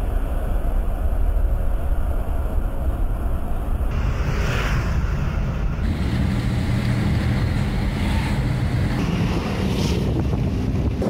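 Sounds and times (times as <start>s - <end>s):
road noise rumble: 0.0s - 11.0s
wind buffeting microphone: 5.0s - 11.0s.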